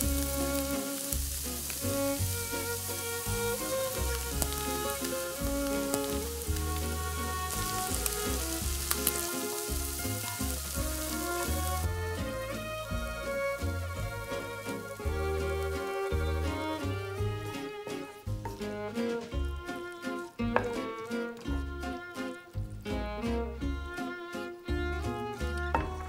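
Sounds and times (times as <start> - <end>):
meat sizzling in hot oil: 0.0 - 18.7
wooden spatula scraping pan: 0.0 - 22.4
background music with bass line: 0.0 - 26.0.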